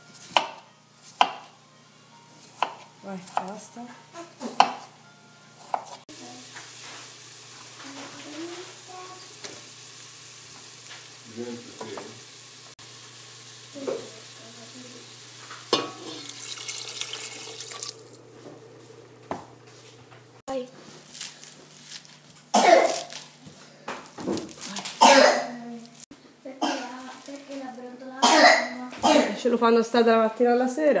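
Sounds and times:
knife chopping on wooden board: 0.2s - 1.5s, 2.5s - 3.5s, 4.4s - 4.9s, 5.6s - 6.0s
vegetables sizzling in oil: 6.1s - 20.4s.

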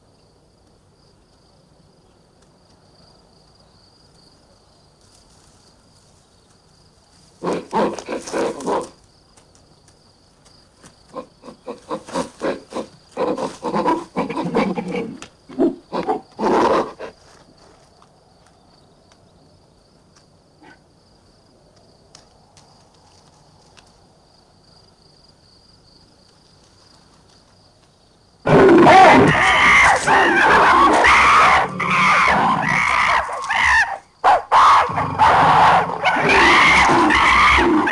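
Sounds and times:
big cat roaring: 7.4s - 9.0s, 11.1s - 17.1s, 28.5s - 37.9s
apes grunting and hooting: 28.5s - 37.9s
apes screaming: 28.5s - 37.9s.

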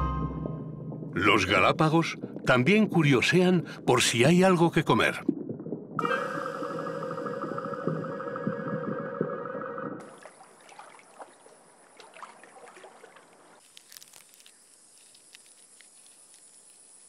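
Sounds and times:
background music: 0.0s - 1.3s
small clicks and ticks: 13.6s - 16.9s.

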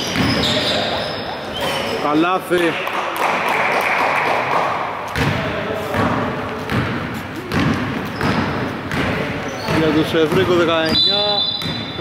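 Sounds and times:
basketball dribbling on wood floor: 6.0s - 11.0s.

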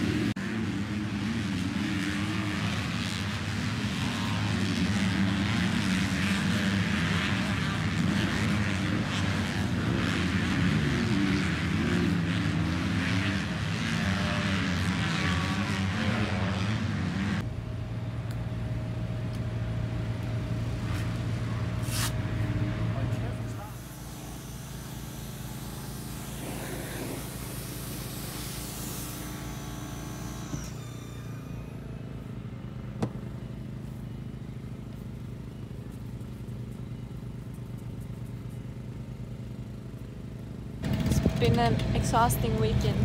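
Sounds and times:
motocross bike engines revving: 0.0s - 17.5s, 19.5s - 43.0s
electric fan hum: 0.0s - 38.5s, 40.8s - 43.0s.

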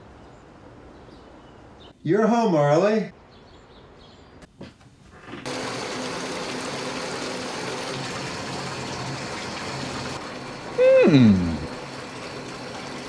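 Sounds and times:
tap water gushing into bathtub: 5.3s - 13.0s.

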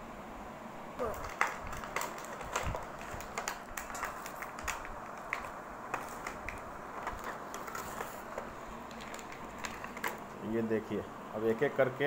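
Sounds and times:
cardboard and plastic packaging crinkling: 1.0s - 10.4s.

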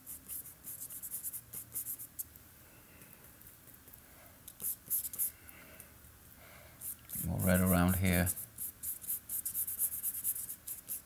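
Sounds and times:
paintbrush scrubbing and dabbing: 6.8s - 11.0s.

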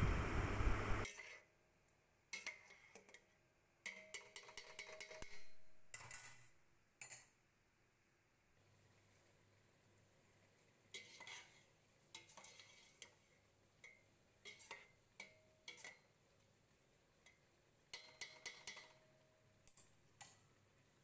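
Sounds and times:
spoon scraping a steel pot: 3.9s - 7.3s, 10.9s - 13.2s, 14.4s - 15.0s, 17.9s - 19.0s.

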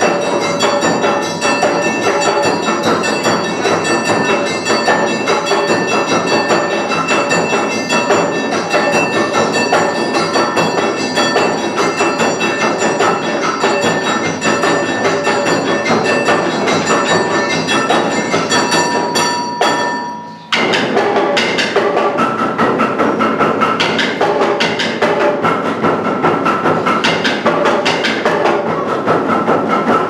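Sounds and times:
high melody: 0.0s - 21.0s
clanging gong: 0.0s - 30.0s
driving drum beat: 0.0s - 30.0s.

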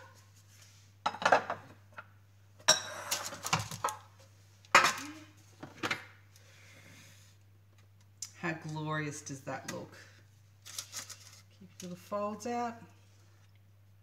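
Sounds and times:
kitchenware knocks and clinks: 1.1s - 1.8s, 2.6s - 3.9s.

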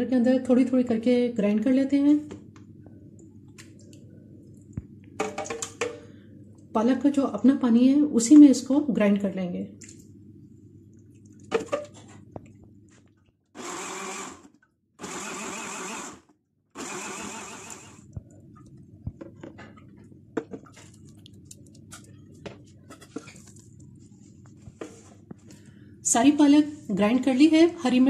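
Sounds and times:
electric blender grinding: 13.6s - 18.1s.

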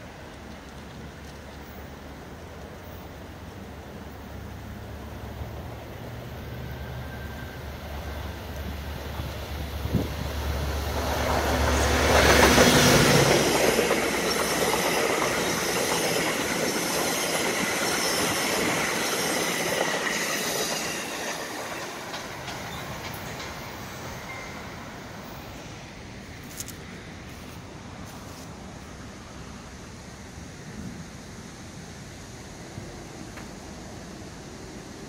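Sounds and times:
train wheels rolling and clattering: 0.0s - 3.3s, 7.9s - 25.5s
diesel locomotive engine rumble: 0.0s - 35.0s.

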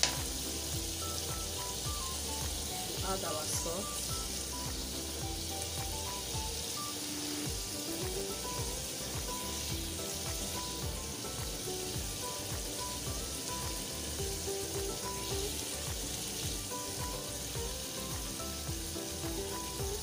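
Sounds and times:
sauce sizzling in a pot: 0.0s - 20.0s
soft background music: 0.0s - 20.0s.

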